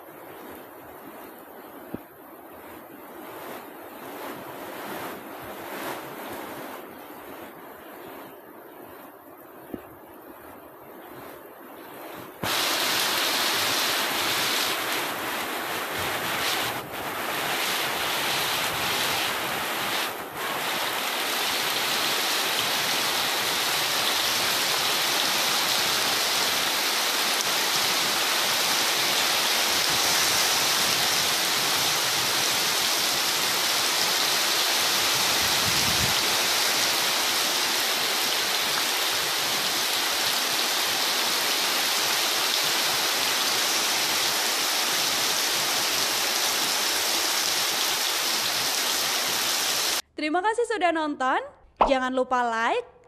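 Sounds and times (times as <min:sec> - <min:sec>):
heavy rain pouring: 0:12.4 - 0:50.0.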